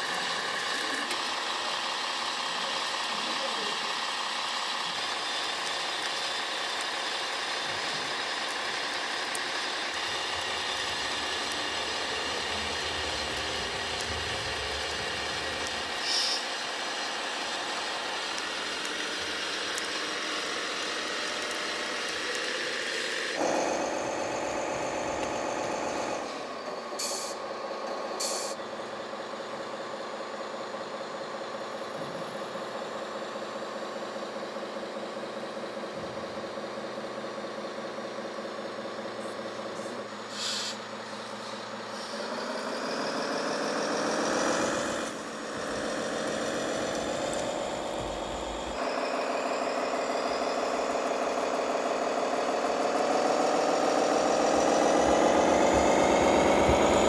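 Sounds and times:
simulated diesel engine: 0:00.0 - 0:57.0
whine of small motors: 0:00.0 - 0:57.0
air-brake hisses: 0:16.0 - 0:16.5, 0:27.0 - 0:27.4, 0:28.2 - 0:28.6, 0:40.3 - 0:42.3.

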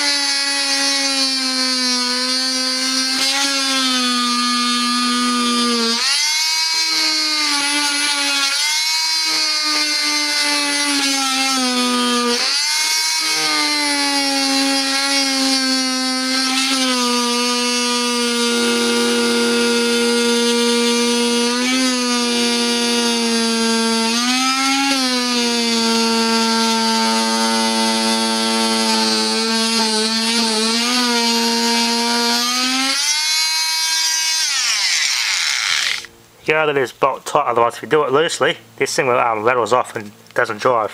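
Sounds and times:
multi-tool saw cutting wood: 0:00.0 - 0:36.1.

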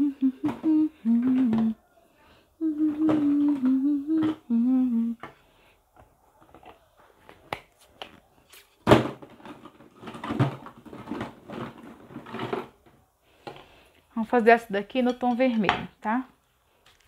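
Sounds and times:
woman humming: 0:00.0 - 0:01.8, 0:02.6 - 0:05.3.

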